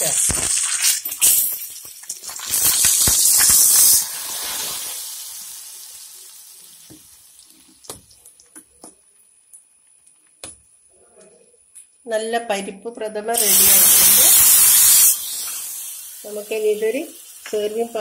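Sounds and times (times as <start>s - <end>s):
loud sizzle: 0.0s - 9.3s, 13.4s - 18.0s.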